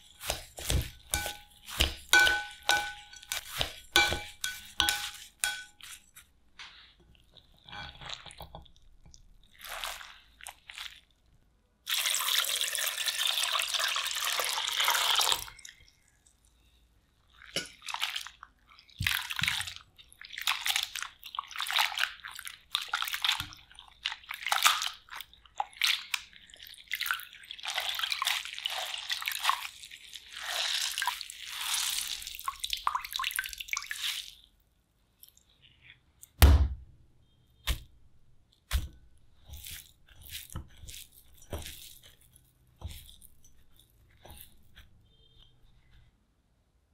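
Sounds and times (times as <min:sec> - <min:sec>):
hands swishing wet potato shreds: 0:00.0 - 0:07.0, 0:09.5 - 0:11.1, 0:17.4 - 0:34.5, 0:37.7 - 0:37.9, 0:38.6 - 0:45.0
water pouring into a glass bowl: 0:11.9 - 0:15.9
water splashing and dripping: 0:19.0 - 0:34.4.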